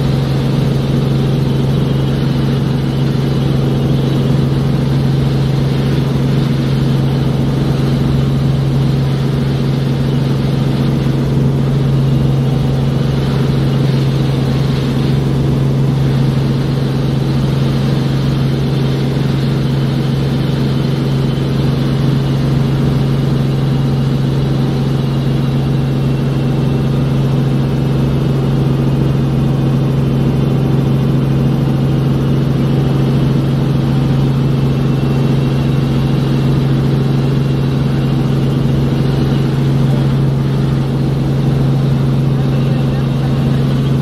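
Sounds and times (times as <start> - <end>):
helicopter engine and rotors humming: 0.0 - 44.0.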